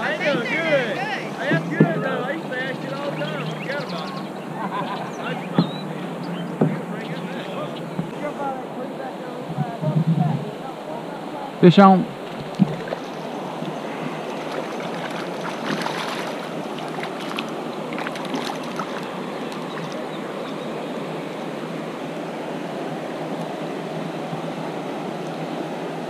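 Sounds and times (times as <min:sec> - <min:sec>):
river water rushing: 0:00.0 - 0:26.0
fish splashing at surface: 0:12.3 - 0:20.1.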